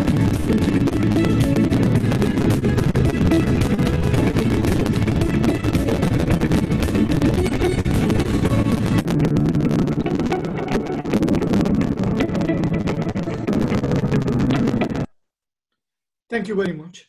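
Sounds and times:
background music: 0:00.0 - 0:13.6.

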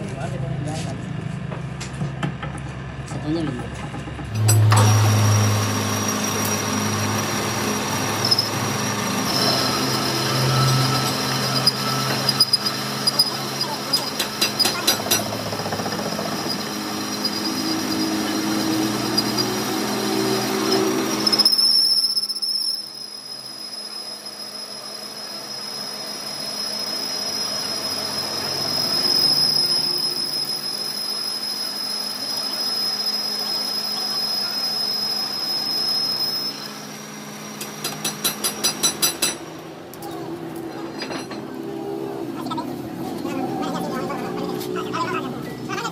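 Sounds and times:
lathe machine hum: 0:04.0 - 0:45.9
heavy metal cutting noise: 0:04.3 - 0:22.1
lathe tool high-pitched squeal: 0:04.4 - 0:39.4.

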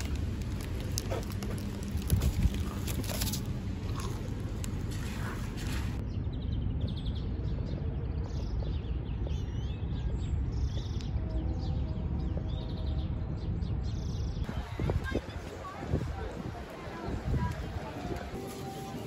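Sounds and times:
low background rumble: 0:00.0 - 0:15.1
small birds chirping: 0:00.0 - 0:18.4.

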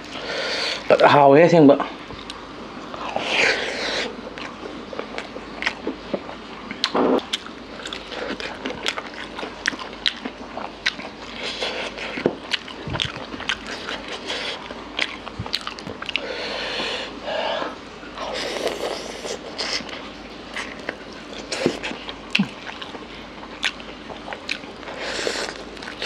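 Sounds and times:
wet chewing and lip smacks: 0:04.4 - 0:16.2.

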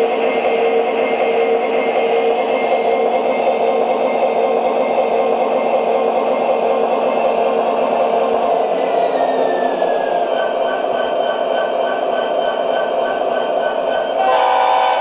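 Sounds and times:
diesel locomotive engine drone: 0:00.0 - 0:15.0
locomotive horn blowing: 0:14.2 - 0:15.0.

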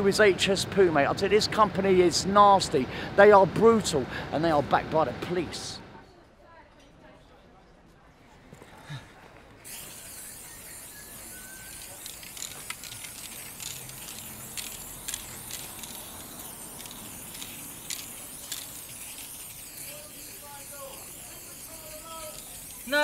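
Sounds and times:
spray paint can hissing: 0:09.6 - 0:23.0.

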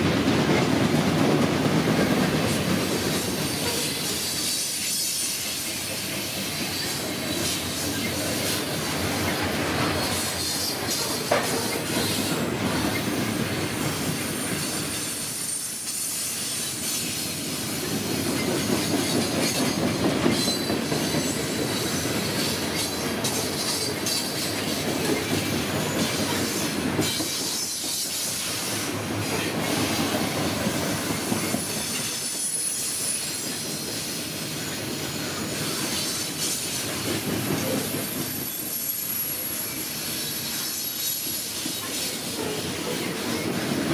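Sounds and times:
train wheels rumbling on rail: 0:00.0 - 0:43.9
high wheel squeal: 0:03.1 - 0:08.6, 0:18.4 - 0:29.8, 0:31.2 - 0:36.8, 0:37.6 - 0:43.8.

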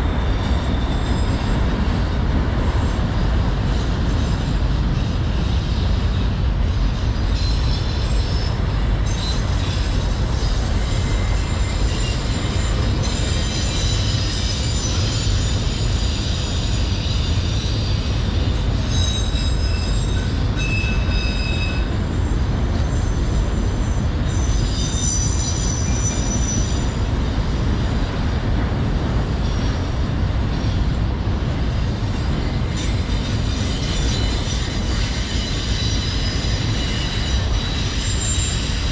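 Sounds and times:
train wheels rumbling on rail: 0:00.0 - 0:38.9
high-pitched wheel squeals: 0:07.1 - 0:29.9, 0:32.2 - 0:38.9.

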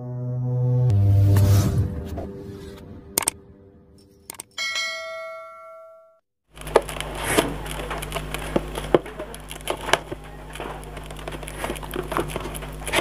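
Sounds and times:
cardboard rustling: 0:06.5 - 0:13.0
steady low hum: 0:06.5 - 0:13.0.

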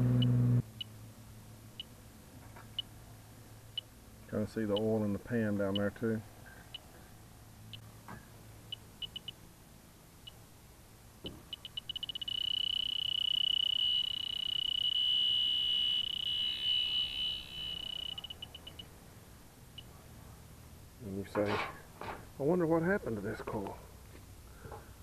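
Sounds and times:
leak detector beeping: 0:08.7 - 0:09.4, 0:11.5 - 0:18.9
steady high alarm tone: 0:11.8 - 0:18.8.

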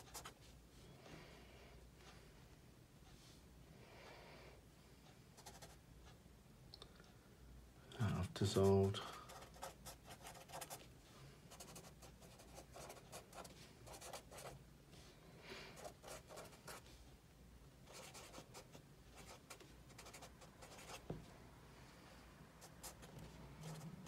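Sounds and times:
marker scratching on paper: 0:00.0 - 0:00.4, 0:09.3 - 0:10.8, 0:11.5 - 0:14.6, 0:15.8 - 0:16.9, 0:17.9 - 0:21.1, 0:22.6 - 0:23.9.

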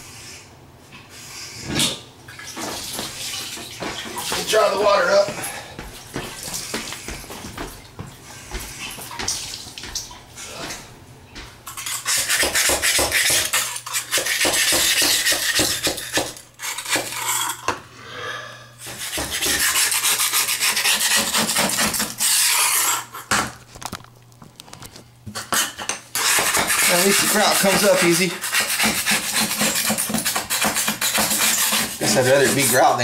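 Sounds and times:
metal scraper rasping on grout: 0:11.7 - 0:17.7, 0:18.8 - 0:23.3, 0:25.4 - 0:33.0.

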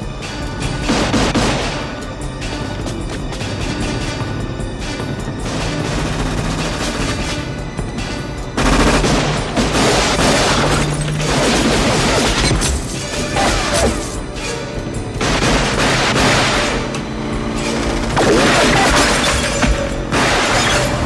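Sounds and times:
film score music: 0:00.0 - 0:21.0
burst of gunfire: 0:08.6 - 0:12.6, 0:15.2 - 0:16.9, 0:18.1 - 0:21.0.

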